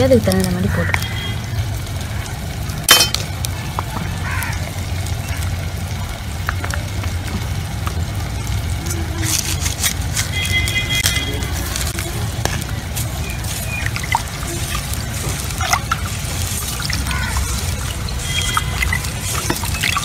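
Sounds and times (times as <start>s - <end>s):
liquid sloshing and splashing: 8.5s - 20.0s.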